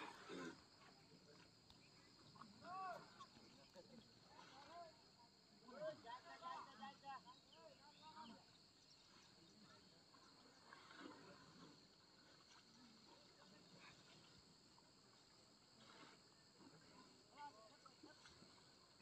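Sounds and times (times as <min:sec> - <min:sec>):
faint insect drone: 0:00.0 - 0:19.0
faint bird chirps: 0:07.2 - 0:10.8.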